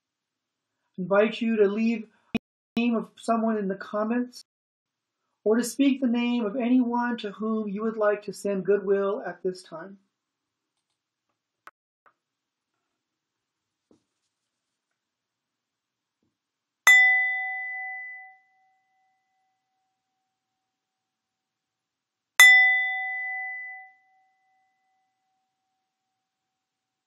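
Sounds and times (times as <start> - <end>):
small bell ringing: 22.4 - 24.2.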